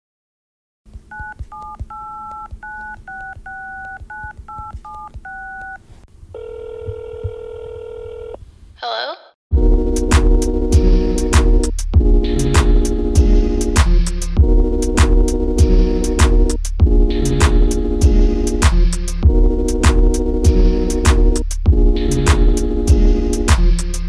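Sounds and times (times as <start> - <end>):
phone ringback tone: 1.1 - 5.8, 6.4 - 8.4
loud music with drum beat: 9.5 - 24.0.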